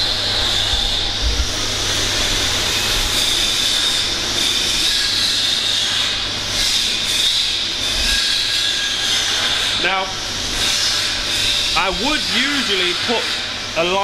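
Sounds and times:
low constant hum: 0.0 - 14.0
steady hissing rush: 9.8 - 14.0.

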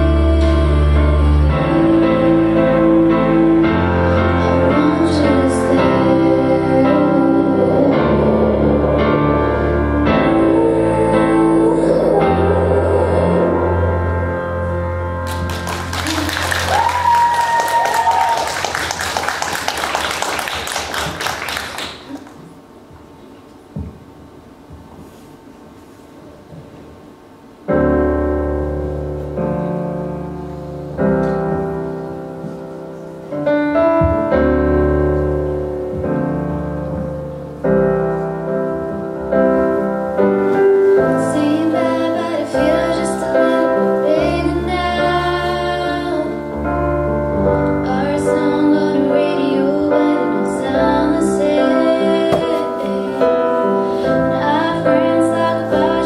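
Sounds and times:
girls singing into microphones: 0.0 - 14.1, 41.0 - 46.7, 47.7 - 56.0
piano chords over speakers: 0.0 - 56.0.

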